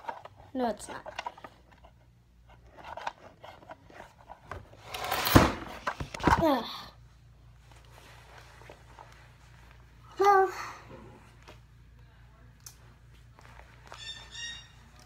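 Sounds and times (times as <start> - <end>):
plastic toy rustling shuffle: 0.0 - 6.5.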